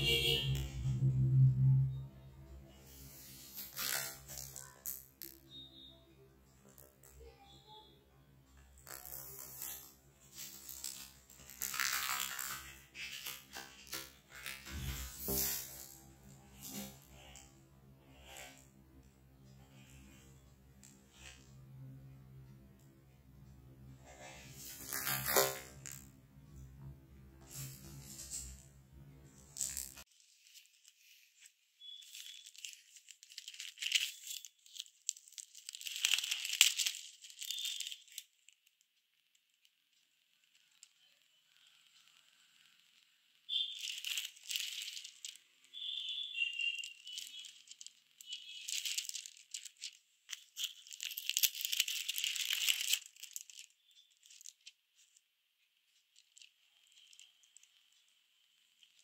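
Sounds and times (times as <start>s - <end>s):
plastic sheet protectors crinkling: 0.0s - 1.4s, 3.3s - 5.8s, 8.8s - 17.5s, 29.4s - 59.0s.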